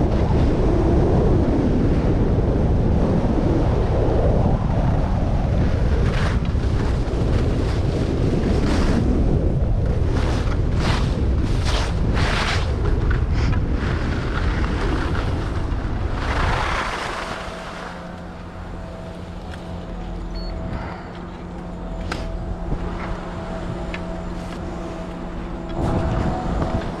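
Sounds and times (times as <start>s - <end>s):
ski lift machinery hum: 0.0s - 27.0s
wind buffeting microphone: 0.0s - 27.0s
skis scraping on snow: 6.0s - 9.2s, 9.9s - 19.7s.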